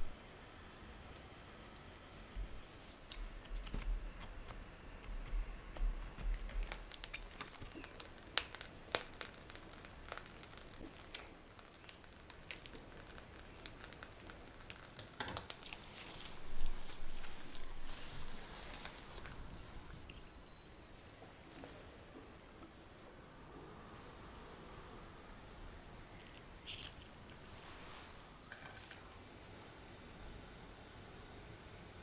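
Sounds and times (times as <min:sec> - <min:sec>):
plastic sheet crinkling: 0:05.8 - 0:20.3.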